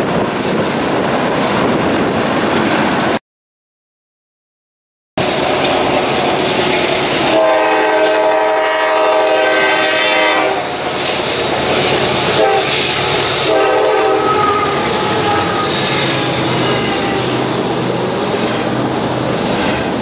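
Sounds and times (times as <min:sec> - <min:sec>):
train wheels on rails: 0:00.0 - 0:03.2, 0:05.2 - 0:20.0
locomotive air horn blasts: 0:07.3 - 0:10.8, 0:12.3 - 0:12.8, 0:13.4 - 0:17.3.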